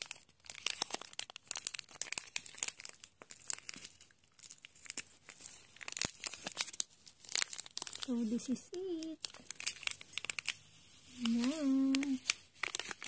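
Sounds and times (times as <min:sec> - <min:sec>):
packet crinkling and tearing: 0:00.0 - 0:13.0.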